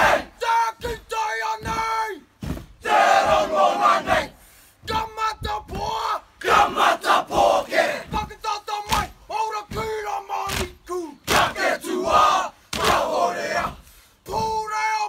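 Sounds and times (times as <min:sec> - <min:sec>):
group of men shouting a chant: 0:02.8 - 0:04.4, 0:05.8 - 0:13.8.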